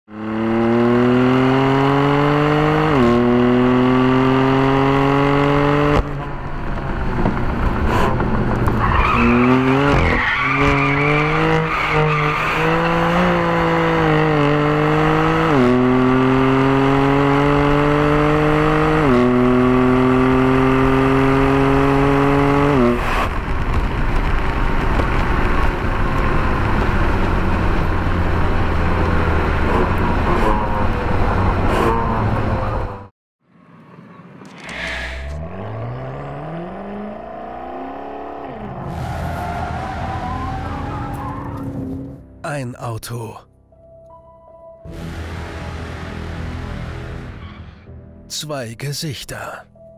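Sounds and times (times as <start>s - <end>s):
road and wind noise: 0.1s - 42.4s.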